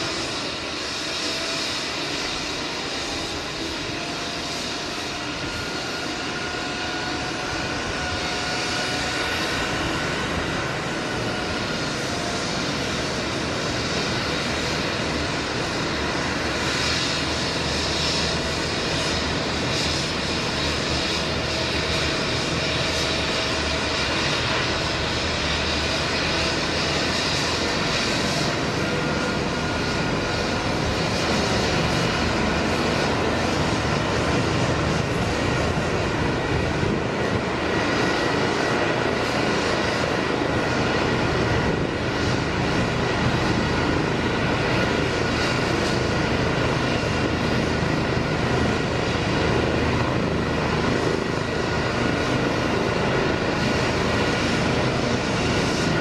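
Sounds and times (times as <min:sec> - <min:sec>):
helicopter rotor noise: 0:00.0 - 0:56.0
helicopter turbine whine: 0:00.0 - 0:56.0.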